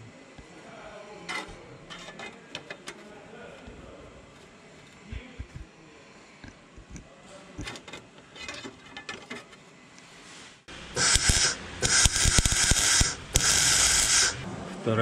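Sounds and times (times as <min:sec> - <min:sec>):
welder crackling: 0:05.0 - 0:05.7, 0:06.4 - 0:07.1, 0:10.7 - 0:14.5
sheet metal clicks and scrapes: 0:06.4 - 0:09.6.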